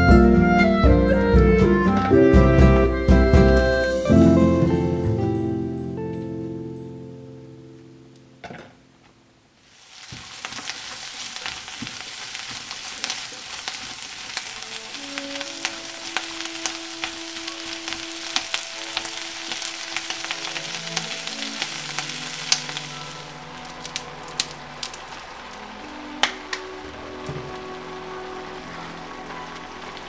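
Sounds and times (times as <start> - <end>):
spatula stir-frying: 9.6 - 30.0
vegetables sizzling in oil: 9.6 - 30.0.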